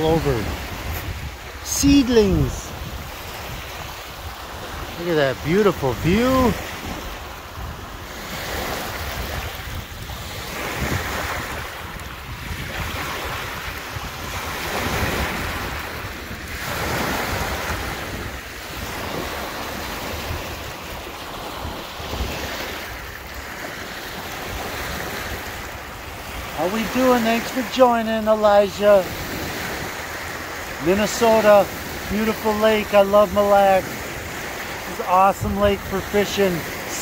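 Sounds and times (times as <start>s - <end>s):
wind rumbling on microphone: 0.0s - 27.0s
waves washing onto rocky shore: 0.0s - 37.0s.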